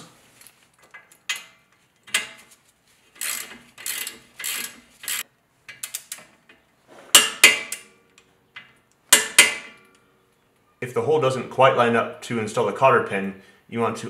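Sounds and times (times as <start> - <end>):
socket wrench ratcheting: 3.2 - 6.3.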